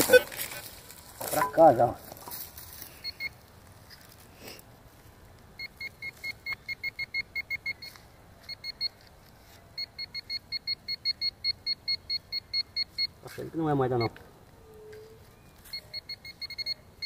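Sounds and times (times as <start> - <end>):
metal detector beeping: 3.0 - 3.4, 5.6 - 9.0, 9.8 - 13.2, 13.8 - 14.2, 14.9 - 17.0.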